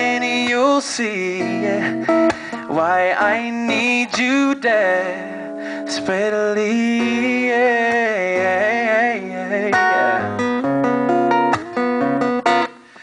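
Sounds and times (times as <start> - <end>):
man singing: 0.0 - 10.6
acoustic guitar strumming: 0.0 - 13.0.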